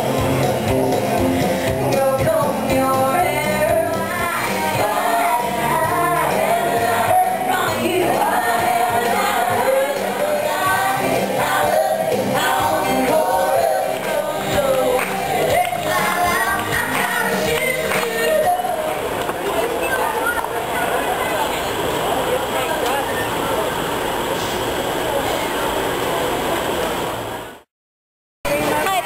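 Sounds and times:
singers with instrumental music: 0.0s - 19.2s.

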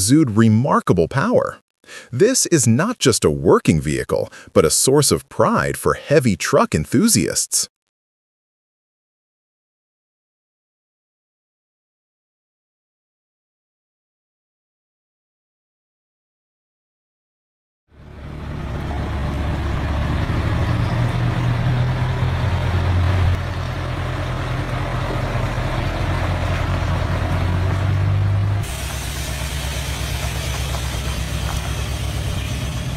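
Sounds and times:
diesel truck engine rumbling: 17.9s - 32.9s
hiss: 28.6s - 32.9s.

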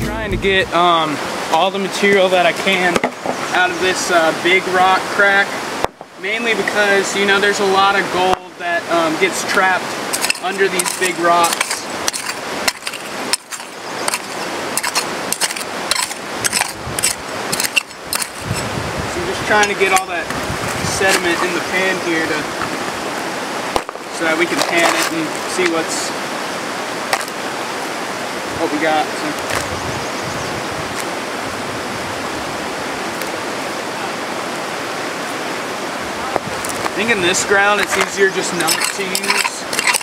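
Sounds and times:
creek rushing: 0.0s - 40.0s
steel pick digging into gravel: 10.1s - 18.7s, 37.8s - 40.0s.

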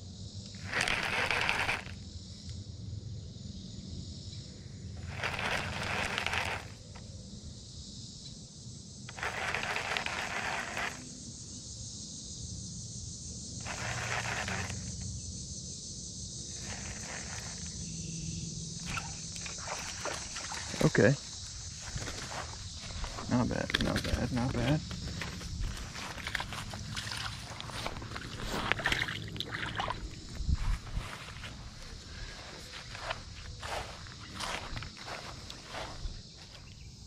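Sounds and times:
insects droning: 0.0s - 37.0s
fishing reel cranking: 0.6s - 2.0s, 5.0s - 6.8s, 9.1s - 11.1s, 13.6s - 15.0s, 16.6s - 17.7s.

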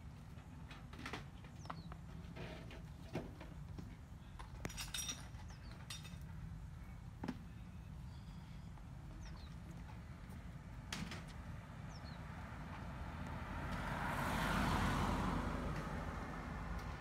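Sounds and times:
scattered clinks and knocks: 4.4s - 6.4s.

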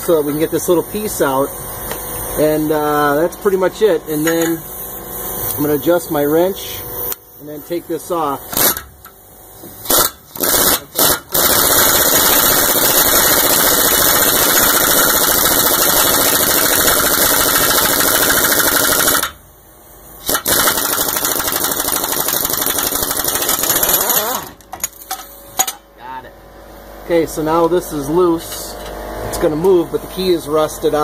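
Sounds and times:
pneumatic impact wrench hammering: 1.2s - 3.2s, 4.1s - 7.4s, 8.2s - 19.4s, 20.1s - 25.8s.

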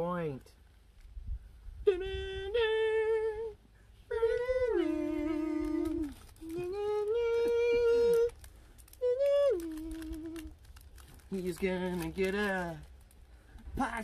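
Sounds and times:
man humming slow tune: 1.8s - 8.3s, 9.0s - 10.5s.

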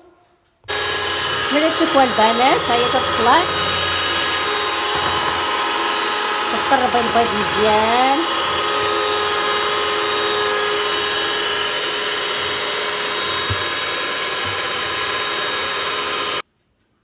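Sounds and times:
electric hand mixer whining: 0.7s - 16.4s.

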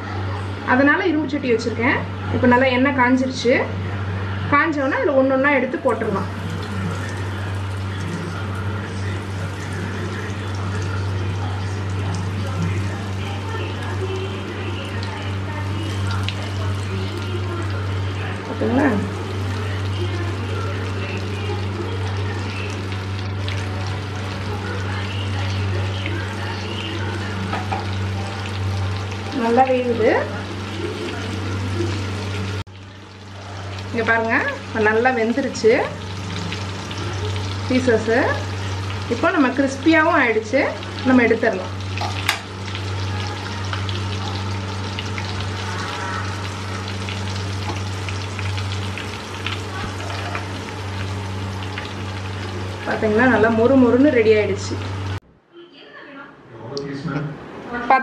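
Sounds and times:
deep-frying in hot oil: 0.4s - 55.2s
low hum: 3.7s - 55.5s.

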